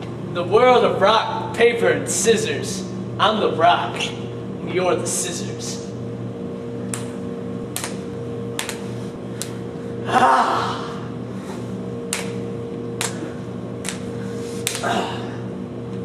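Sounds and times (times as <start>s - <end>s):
low hum: 0.0s - 16.0s
person gasping: 10.0s - 11.7s, 14.7s - 15.5s.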